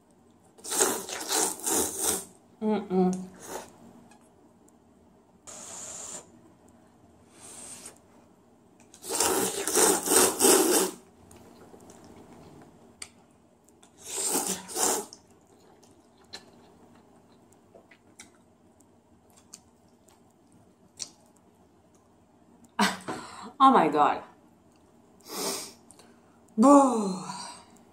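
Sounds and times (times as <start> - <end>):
noodle slurping: 0.6 - 2.3, 9.0 - 11.0, 14.0 - 15.2
person blowing on noodles: 0.6 - 2.3, 5.5 - 6.4, 7.4 - 8.0, 9.0 - 11.0, 14.0 - 15.2, 25.2 - 25.8.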